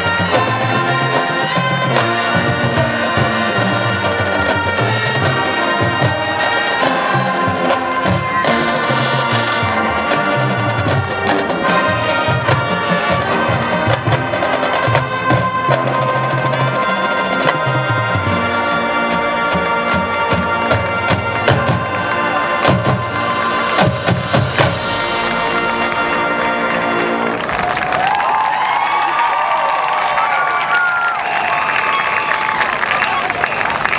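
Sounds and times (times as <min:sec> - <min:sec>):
marching percussion: 0:00.0 - 0:28.3
trumpets and trombones: 0:00.0 - 0:28.3.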